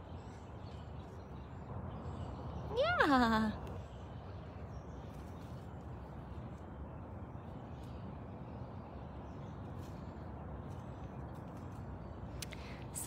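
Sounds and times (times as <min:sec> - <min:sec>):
low outdoor rumble: 0:00.0 - 0:13.0
faint clicks: 0:11.4 - 0:12.8.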